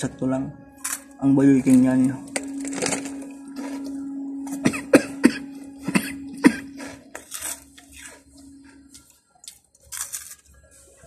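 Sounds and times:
man coughing: 4.6s - 6.8s.

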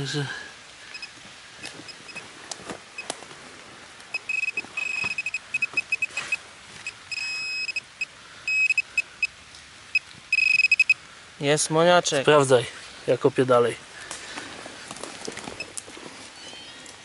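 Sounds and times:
metal detector beeping: 0.9s - 1.2s, 4.1s - 9.3s, 10.0s - 11.0s.

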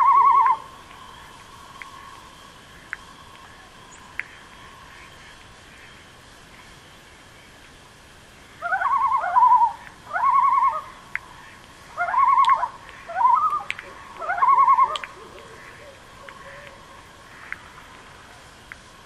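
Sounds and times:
faint distant chorus hum: 0.0s - 19.0s
loon yodelling: 12.0s - 15.5s.

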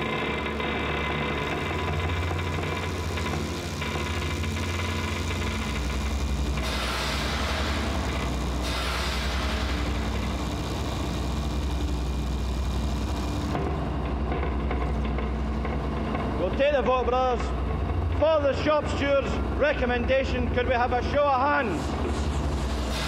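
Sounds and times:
low throbbing machine drone: 0.0s - 23.0s.

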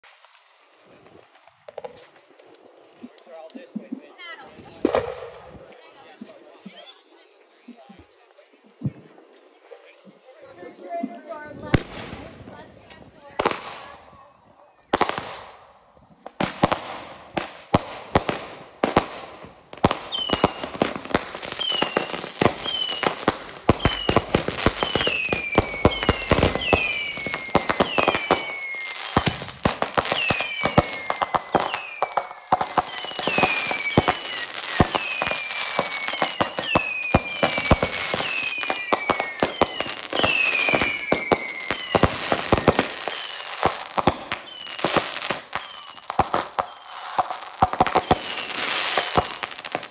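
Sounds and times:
fireworks popping and crackling: 0.0s - 49.9s
falling firework whistles: 20.0s - 49.6s.

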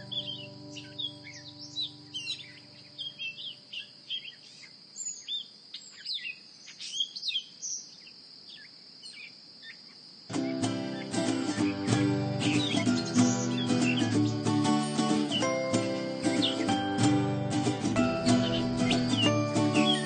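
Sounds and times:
guitar music: 0.0s - 3.4s, 10.3s - 20.0s
held music chord: 0.0s - 3.4s, 10.4s - 20.0s
small birds chirping: 0.0s - 20.0s
high-pitched drone: 15.0s - 20.0s.

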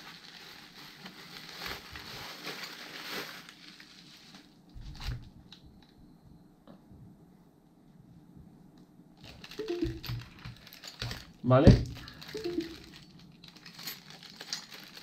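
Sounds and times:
bubble wrap crinkling: 0.0s - 5.5s, 9.2s - 15.0s.

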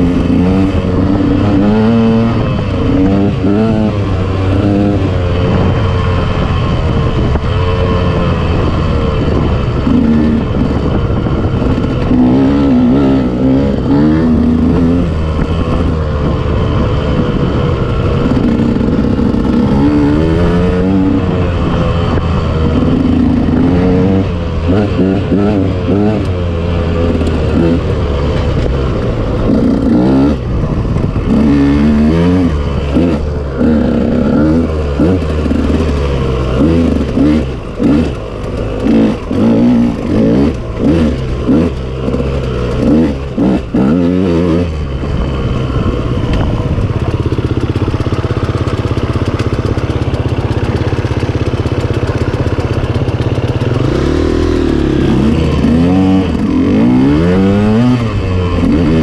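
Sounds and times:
off-road motorcycle engine revving: 0.0s - 59.0s.

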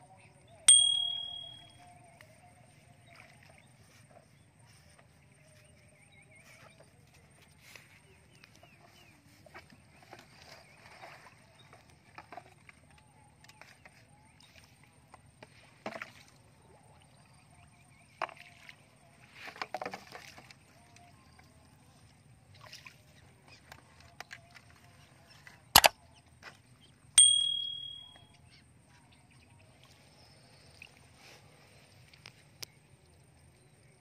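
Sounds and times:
short ringing tone: 0.7s - 1.8s, 27.2s - 28.4s.

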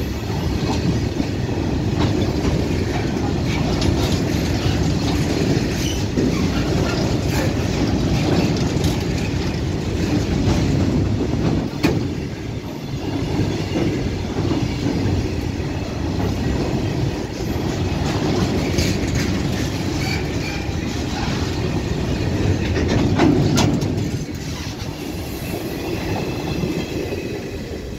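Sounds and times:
train wheels rumbling on rails: 0.0s - 27.9s
wheel squeals: 17.3s - 21.5s.

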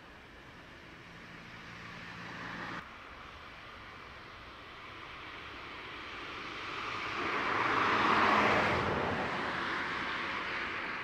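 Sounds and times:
vehicle passing by: 0.8s - 2.8s, 6.4s - 11.0s.

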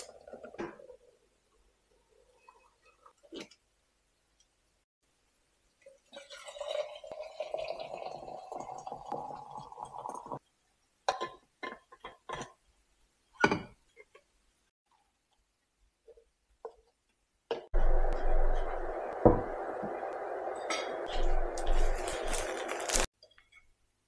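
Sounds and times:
water pouring into a mug: 5.8s - 10.4s.

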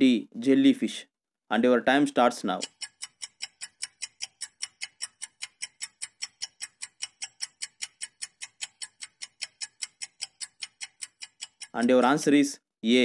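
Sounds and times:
clock ticking fast: 2.3s - 12.3s.

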